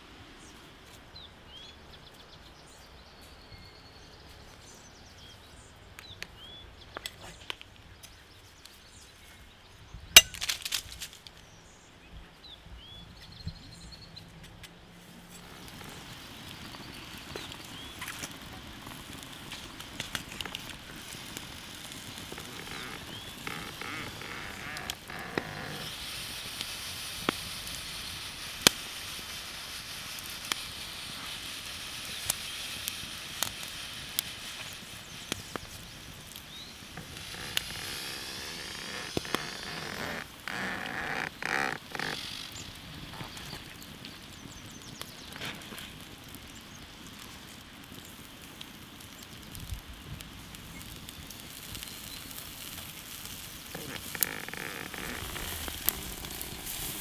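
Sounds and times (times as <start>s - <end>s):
wood fire crackling and popping: 10.2s - 11.5s, 14.4s - 57.0s
sizzling hiss: 14.9s - 57.0s
small birds chirping: 15.3s - 25.9s, 34.2s - 48.3s, 49.0s - 57.0s.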